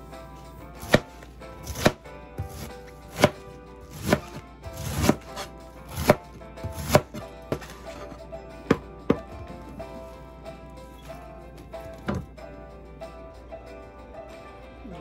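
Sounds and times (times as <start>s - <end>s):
knife chopping cabbage on board: 0.8s - 9.4s.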